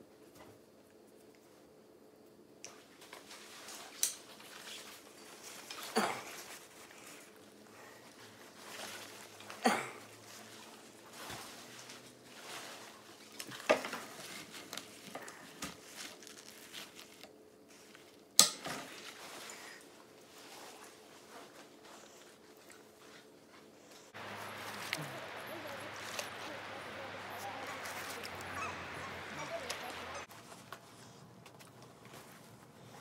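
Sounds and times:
net mesh rustling: 0:10.4 - 0:17.3.

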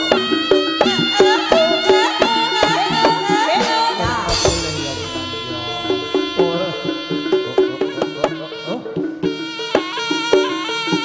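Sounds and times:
hand drum strokes: 0:00.0 - 0:09.5
shawm playing wavering melody: 0:00.0 - 0:11.0
low ringing gong stroke: 0:04.3 - 0:07.5.

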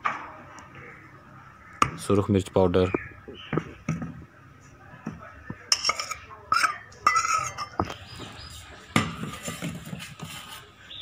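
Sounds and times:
utensils clinking against dish: 0:05.6 - 0:08.3.

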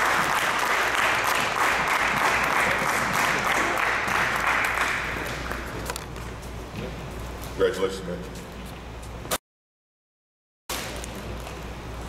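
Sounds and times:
hands clapping: 0:00.0 - 0:06.0.

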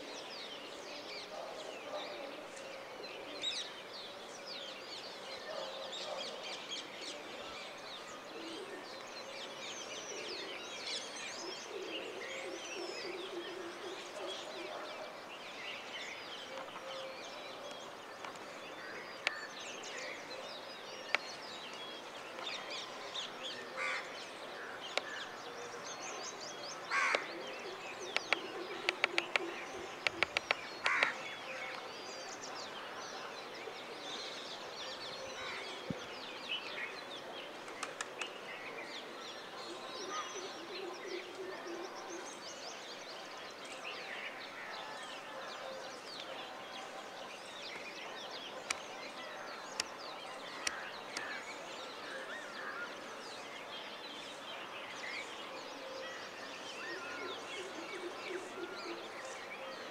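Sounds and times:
birds chirping and calling: 0:05.4 - 0:59.9
crows cawing: 0:26.9 - 0:27.3, 0:30.8 - 0:31.2.

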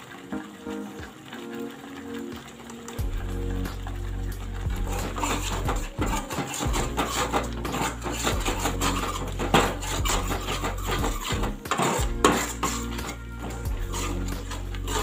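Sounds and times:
metal ladle stirring gravy in pan: 0:01.2 - 0:15.0
ladle clinking against pan: 0:04.9 - 0:15.0.

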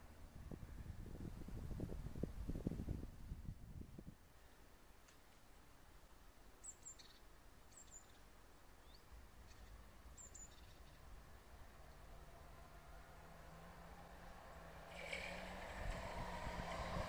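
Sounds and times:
faint high bird chirps: 0:06.6 - 0:11.1.

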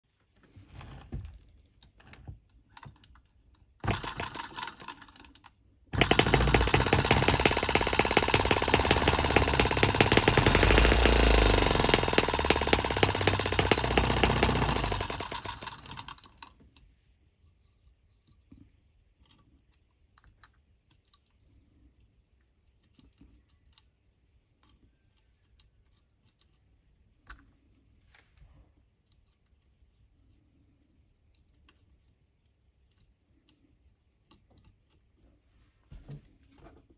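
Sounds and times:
model engine running: 0:03.8 - 0:05.1, 0:06.0 - 0:16.5.

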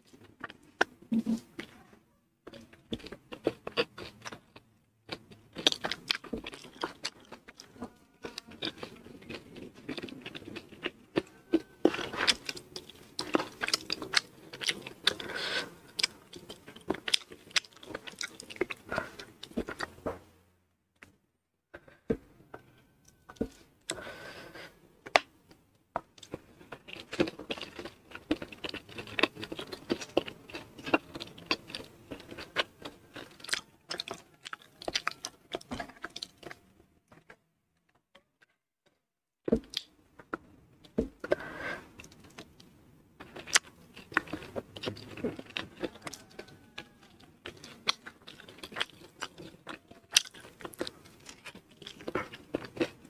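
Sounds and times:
close chewing with crunches: 0:02.5 - 0:20.0, 0:26.0 - 0:37.3, 0:40.8 - 0:53.0.

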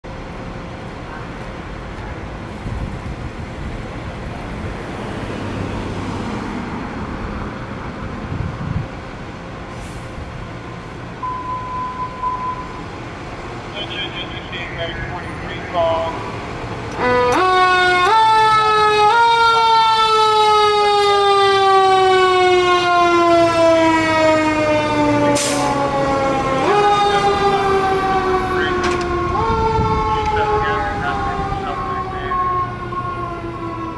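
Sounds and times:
truck engine rumble: 0:00.1 - 0:33.9
fire engine siren wailing: 0:11.1 - 0:33.9
diesel engine idling: 0:12.3 - 0:17.1.

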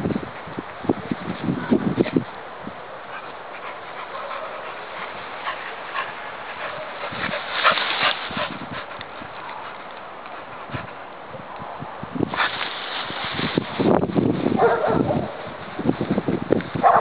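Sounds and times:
dog rustling through undergrowth: 0:03.1 - 0:11.2, 0:12.2 - 0:14.7.

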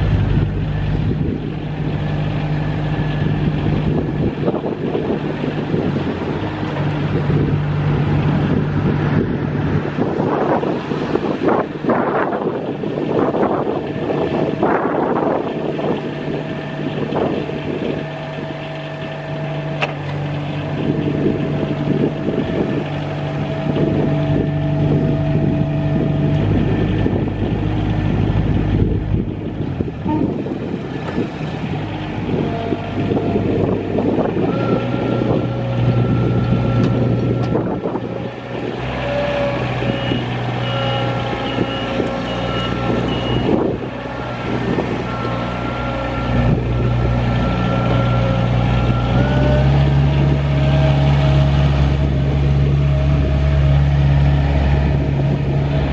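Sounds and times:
diesel engine running: 0:00.0 - 0:55.9
reversing alarm beeping: 0:32.2 - 0:38.1, 0:38.9 - 0:51.5.

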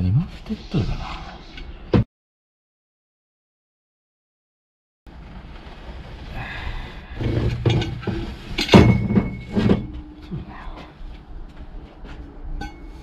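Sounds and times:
hand tools clanking against metal: 0:07.3 - 0:10.3.

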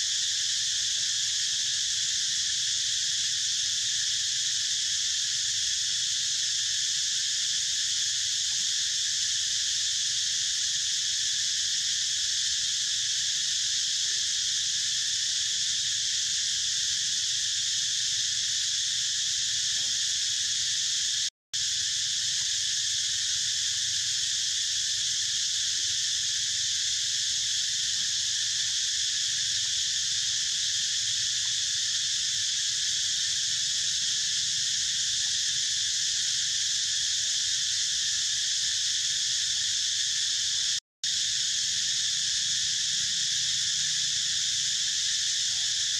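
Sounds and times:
insect chorus drone: 0:00.0 - 0:45.9.

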